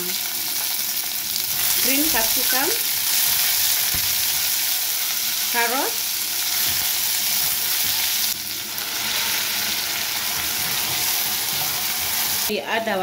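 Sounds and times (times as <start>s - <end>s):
vegetables sizzling in hot oil: 0.0s - 12.5s
spatula stirring in pot: 6.4s - 12.5s.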